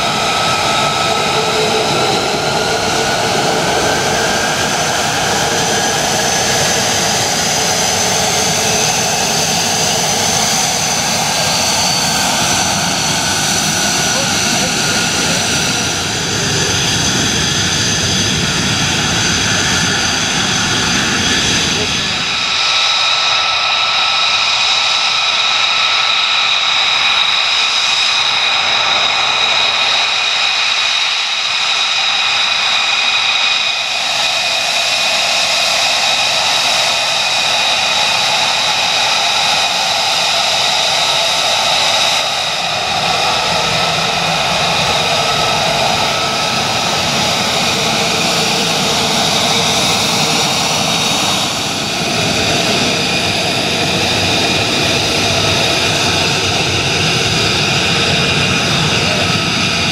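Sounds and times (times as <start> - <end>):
jet engine whine: 0.0 - 59.9.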